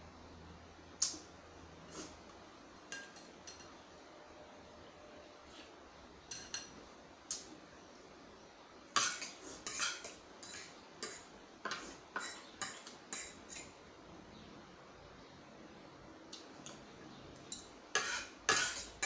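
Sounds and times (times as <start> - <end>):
cutlery clinking on a plate: 2.9 - 3.8, 6.3 - 7.4, 9.0 - 13.8, 17.4 - 19.0.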